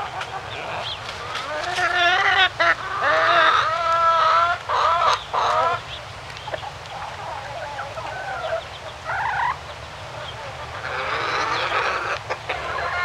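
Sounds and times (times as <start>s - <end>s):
chickens clucking: 0.0s - 13.0s
chickens squawking: 0.0s - 13.0s.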